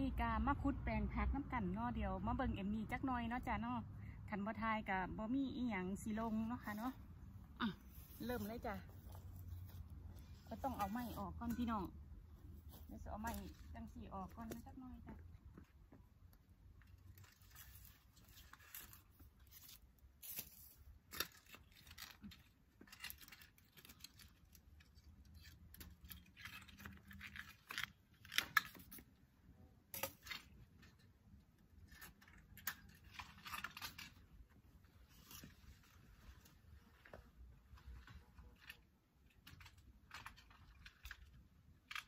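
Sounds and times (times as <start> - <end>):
dry plant stems rustling: 6.0 - 14.8, 16.8 - 29.0, 31.8 - 42.0.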